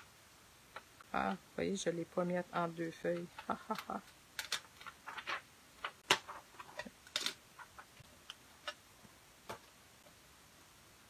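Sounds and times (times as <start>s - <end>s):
plastic sheet crinkles and clicks: 3.2s - 8.8s.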